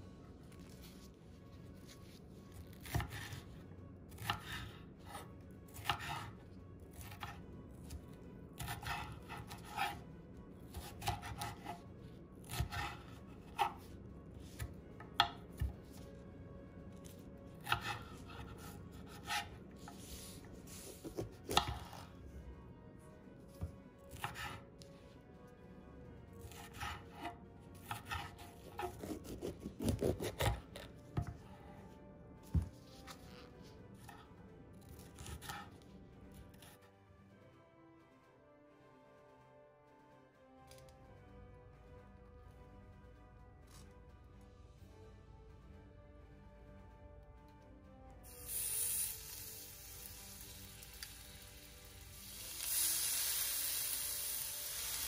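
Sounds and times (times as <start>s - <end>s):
knife slicing peppers: 2.7s - 3.5s, 4.1s - 6.3s, 8.6s - 10.0s, 10.7s - 13.9s, 17.6s - 22.1s, 24.1s - 24.6s, 26.4s - 31.3s, 35.0s - 35.7s.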